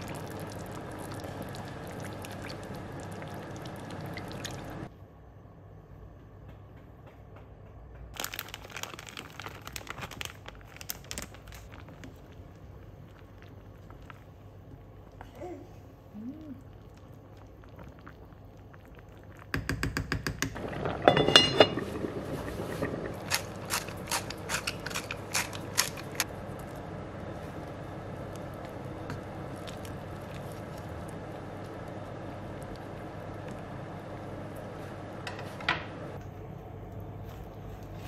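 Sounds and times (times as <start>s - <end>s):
soup bubbling and popping: 0.0s - 4.9s, 16.5s - 26.8s
kitchen utensils clattering: 20.6s - 26.1s.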